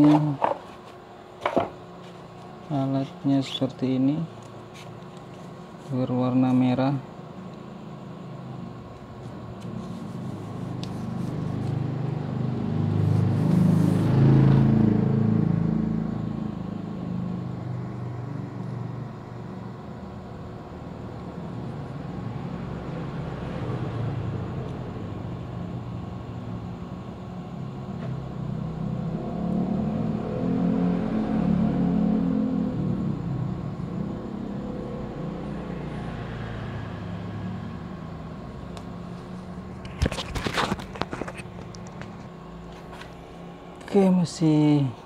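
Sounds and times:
vehicle engine rumbling: 8.8s - 43.8s.

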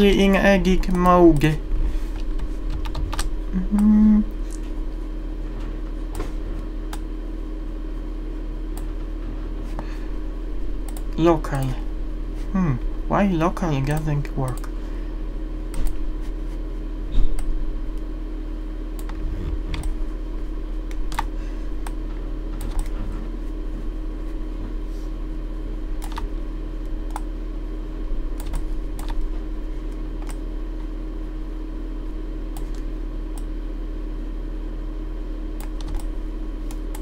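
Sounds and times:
low electrical hum: 0.0s - 37.0s
keyboard and mouse clicks: 2.2s - 3.9s, 20.9s - 22.0s, 22.6s - 23.0s, 26.0s - 26.3s, 28.4s - 29.2s, 30.2s - 30.4s, 32.5s - 33.4s, 35.6s - 36.1s, 36.7s - 37.0s.

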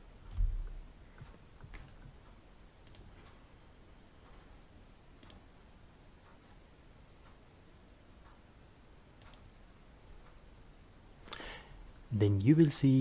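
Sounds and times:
computer mouse clicks: 2.8s - 3.4s, 5.2s - 5.5s, 9.2s - 9.5s.

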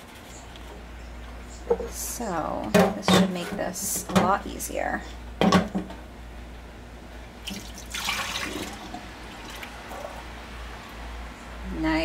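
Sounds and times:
liquid trickling through funnel: 7.5s - 10.2s.

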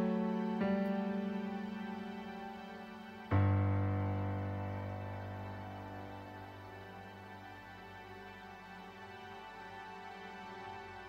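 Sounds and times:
soft instrumental music: 0.0s - 11.0s.

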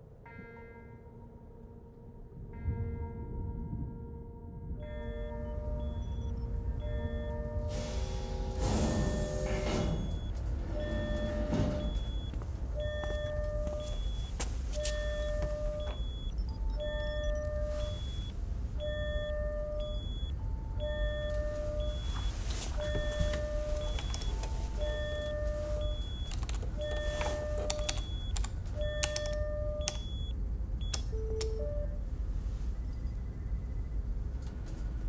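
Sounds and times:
low machine hum: 4.7s - 35.0s
electronic beeps: 4.8s - 32.0s
sharp clicks: 27.6s - 30.2s, 30.8s - 31.6s.

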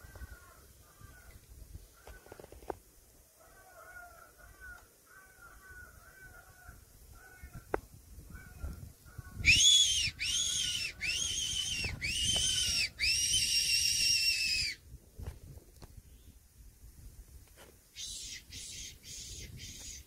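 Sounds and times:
squealing whistle calls: 9.4s - 14.8s, 18.0s - 20.0s.

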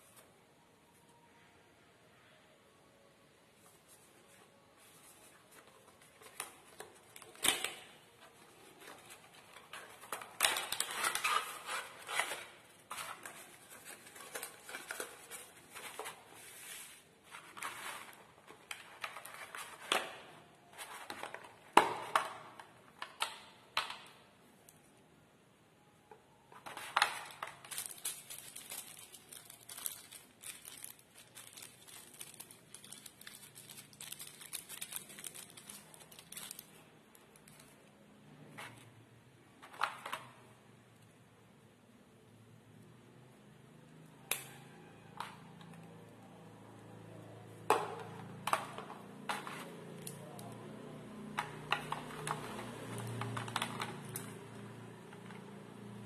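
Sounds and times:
plastic wrapping crinkling: 3.8s - 21.7s, 26.6s - 37.9s
cardboard box opening: 10.0s - 18.2s.

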